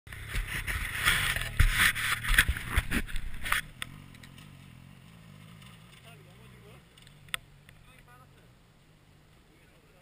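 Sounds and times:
loud rough rushing noise with knocks: 0.1s - 4.5s.

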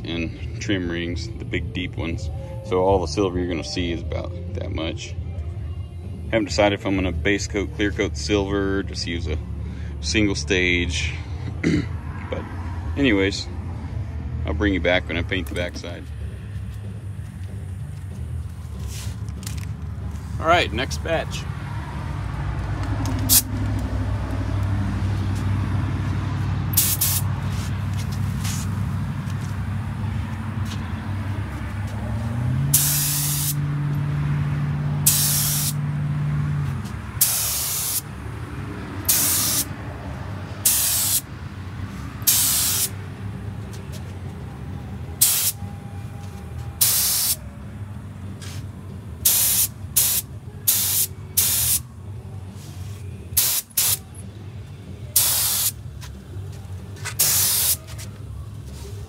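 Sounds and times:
low motor hum: 15.4s - 32.8s
spray gun hiss bursts: 26.8s - 27.7s, 32.7s - 33.6s, 35.0s - 35.8s, 37.2s - 38.0s, 39.1s - 39.7s, 40.6s - 41.2s, 42.3s - 42.9s, 45.2s - 45.6s, 46.8s - 47.4s, 49.2s - 51.8s, 53.4s - 54.0s, 55.2s - 55.8s, 57.2s - 57.8s.

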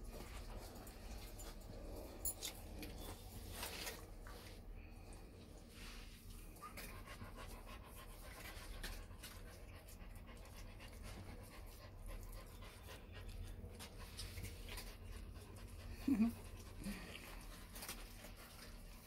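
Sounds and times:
dog panting: 6.6s - 19.0s.

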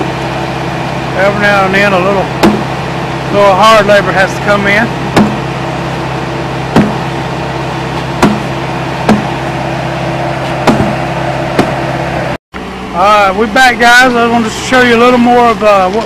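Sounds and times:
loader engine running: 0.0s - 16.0s
sledgehammer hitting concrete: 2.4s - 2.7s, 5.1s - 5.5s, 6.7s - 7.1s, 8.2s - 9.4s, 10.6s - 11.0s.

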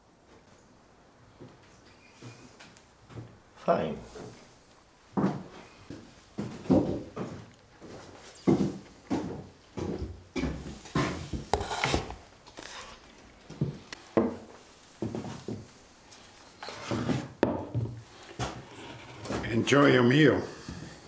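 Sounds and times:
footsteps on wooden floorboards: 2.2s - 3.4s, 4.1s - 4.5s, 5.1s - 12.9s, 13.5s - 19.6s
wooden bowls set on table: 10.6s - 19.8s.

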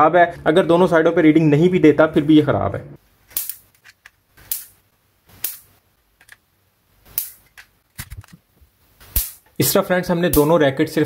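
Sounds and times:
electric spark snaps: 3.3s - 3.8s, 4.4s - 5.8s, 7.0s - 8.1s, 9.0s - 10.6s.

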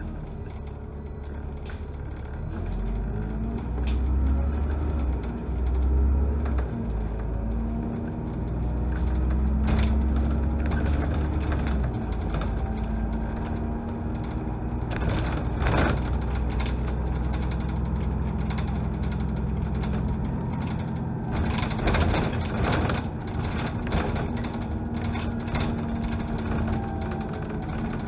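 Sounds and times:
bus engine drone: 0.0s - 28.0s
body and window rattles: 8.4s - 28.0s.

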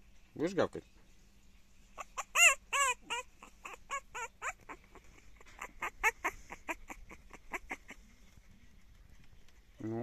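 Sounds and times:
puppy yapping: 2.0s - 8.0s.

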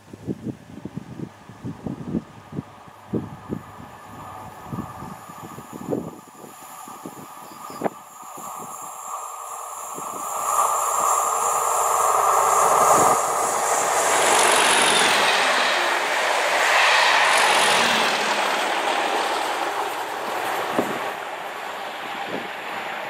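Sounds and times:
train wheels rushing on rails: 1.5s - 23.0s
diesel locomotive engines thrashing: 6.8s - 23.0s.

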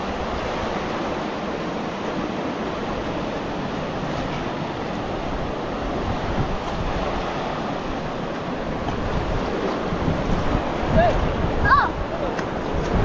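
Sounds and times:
river rushing over rapids: 0.0s - 13.0s.

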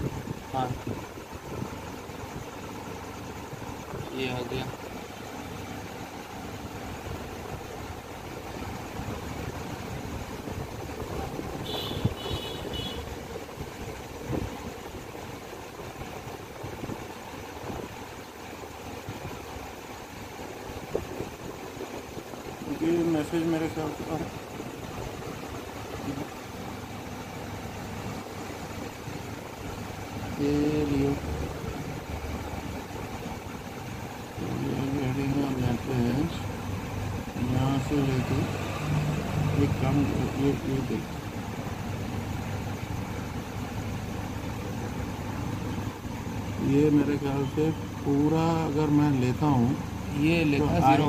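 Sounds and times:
car engine idling: 0.0s - 51.0s
person speaking: 3.9s - 5.0s, 25.9s - 26.4s, 30.2s - 32.0s, 37.3s - 38.8s, 39.4s - 41.2s, 46.5s - 51.0s.

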